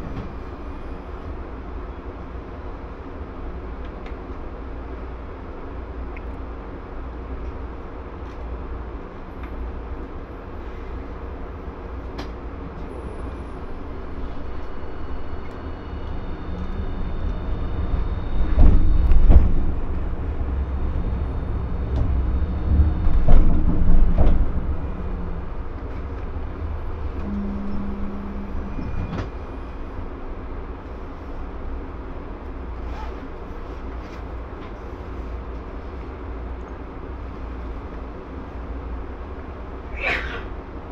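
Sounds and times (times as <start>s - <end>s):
streetcar rumbling on track: 0.0s - 40.9s
knocking and clatter: 23.0s - 25.2s.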